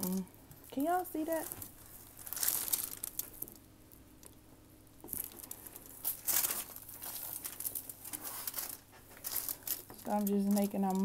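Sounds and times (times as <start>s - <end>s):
foil crinkling: 0.0s - 3.7s, 5.1s - 11.0s
powder crunching: 0.0s - 4.4s, 5.0s - 11.0s.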